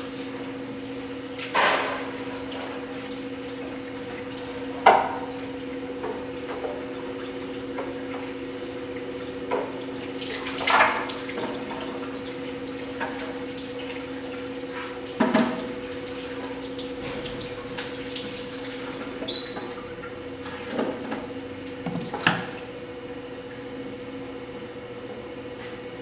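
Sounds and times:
high squeak: 19.3 - 19.7.

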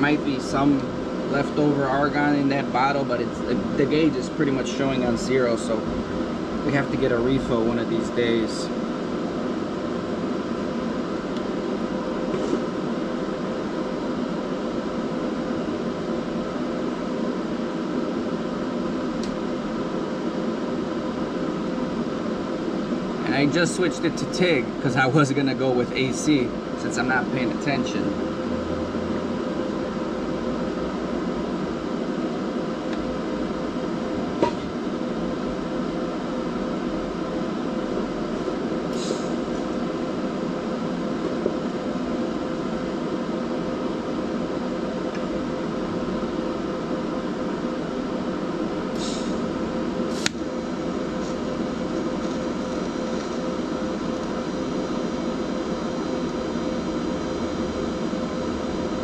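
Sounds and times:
constant whine: 0.0 - 59.0
fan whirring: 0.0 - 59.0
machine hum: 0.0 - 59.0
sharp click: 50.2 - 50.4.

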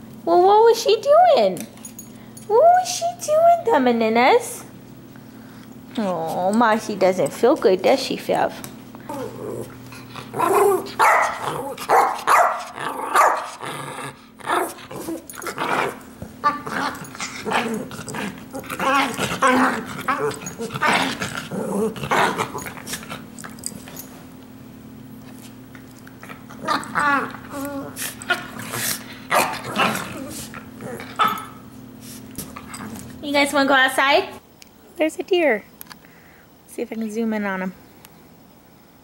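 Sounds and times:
small dogs growling: 9.0 - 24.1, 25.8 - 31.7, 32.4 - 33.2
small dogs barking: 10.3 - 13.7, 26.4 - 31.7.

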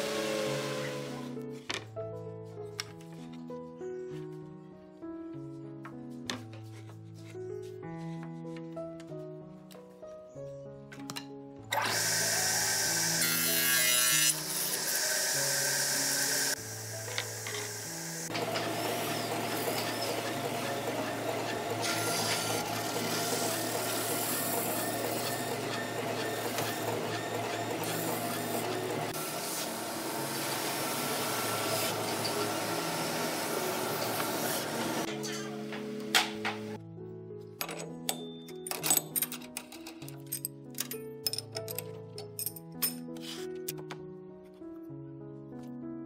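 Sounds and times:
table saw cutting plywood: 0.0 - 1.4, 11.8 - 36.8
background music: 0.0 - 33.8, 35.0 - 46.0
belt sander running: 14.4 - 35.1.

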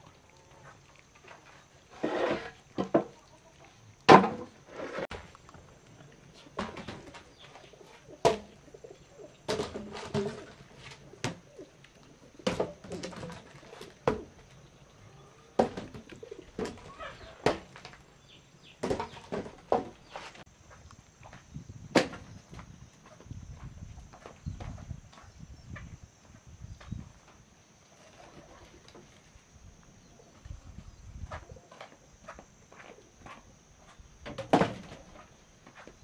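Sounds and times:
poles scraping when dragged: 1.2 - 3.0, 4.1 - 5.2.

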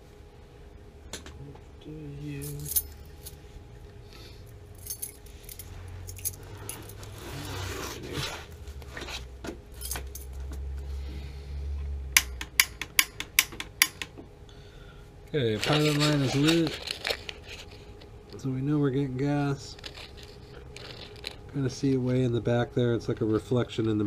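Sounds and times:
metallic clinking and rustling: 2.4 - 3.4, 4.8 - 7.2, 9.7 - 10.4, 15.6 - 18.4, 19.6 - 21.5.

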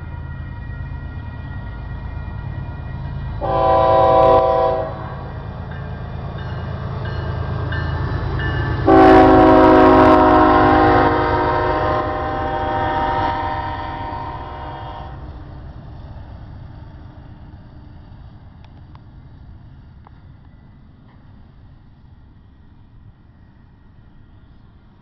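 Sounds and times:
locomotive air horn blasts: 3.4 - 5.3, 8.8 - 15.3.

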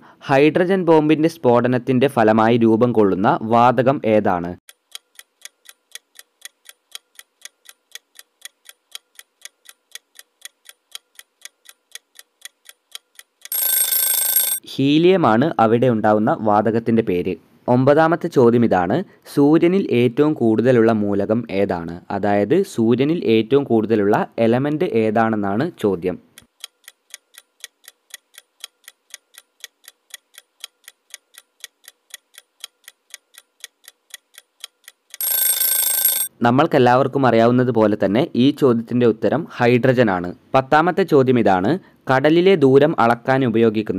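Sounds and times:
clock ticking countdown timer: 4.7 - 14.6, 26.4 - 36.3
ringing alarm bell: 13.5 - 14.6, 35.2 - 36.3.

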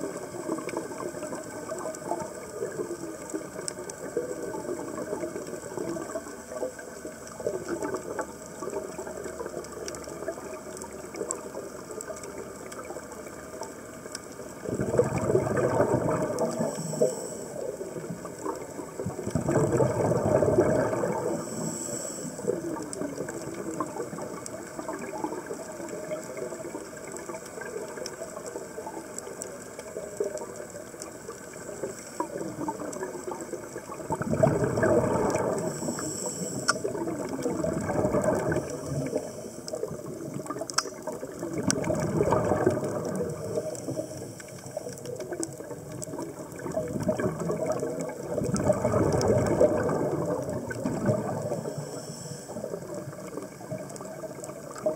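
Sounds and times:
underwater bubbles gurgling: 0.0 - 54.9
short high hiss: 35.6 - 36.9.

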